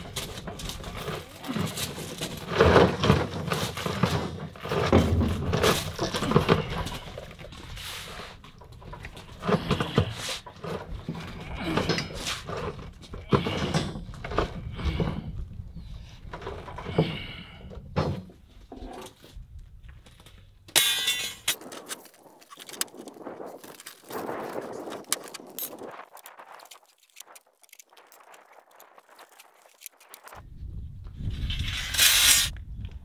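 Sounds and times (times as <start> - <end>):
metal-on-metal rebar bending: 20.7 - 22.0.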